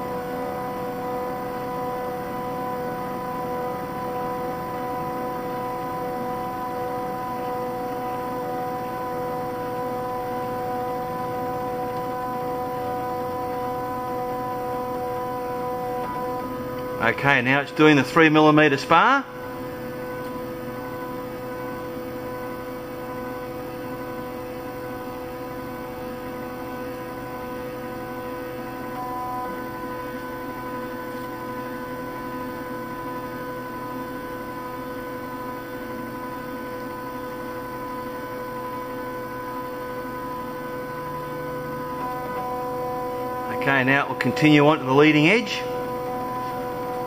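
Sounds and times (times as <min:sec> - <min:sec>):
stepper motors humming: 0:00.0 - 0:23.4, 0:38.1 - 0:47.0
higher motor tone: 0:00.0 - 0:23.5, 0:27.0 - 0:33.7, 0:37.5 - 0:47.0.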